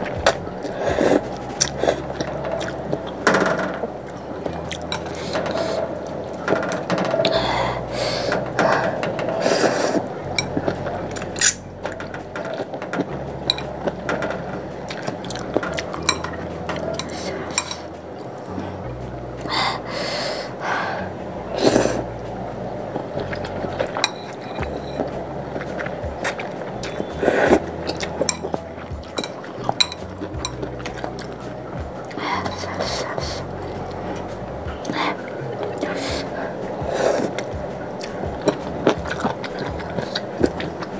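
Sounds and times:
chewing: 0:00.0 - 0:18.8, 0:21.5 - 0:40.9
utensils clinking against bowl: 0:08.2 - 0:17.9, 0:23.2 - 0:34.0
noodles slurped: 0:32.0 - 0:40.9.

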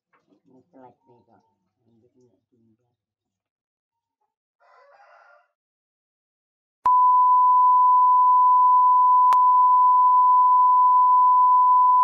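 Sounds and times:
electronic beep: 0:06.9 - 0:12.0.

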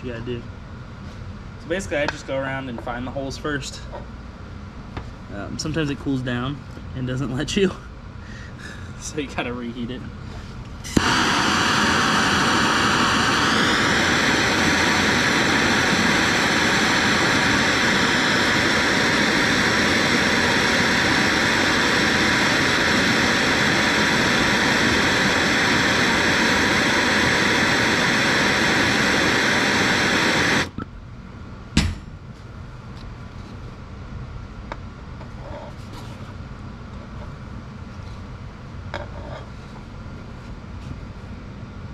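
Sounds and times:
gas torch flame hissing: 0:10.8 - 0:30.7.

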